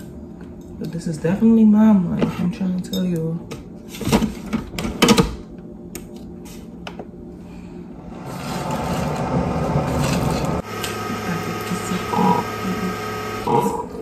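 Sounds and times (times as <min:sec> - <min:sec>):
coffee maker humming and pumping: 0:06.8 - 0:14.0.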